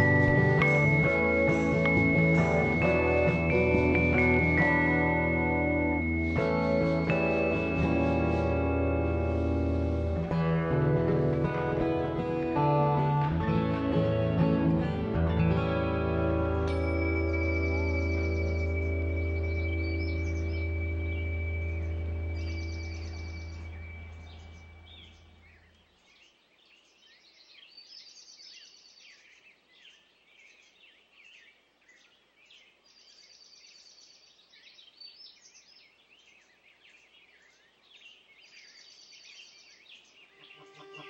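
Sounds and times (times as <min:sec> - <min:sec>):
music: 0:00.0 - 0:25.5, 0:40.3 - 0:41.0
small birds chirping and singing: 0:00.0 - 0:41.0
rapid high bird trill: 0:16.7 - 0:25.7, 0:40.2 - 0:41.0.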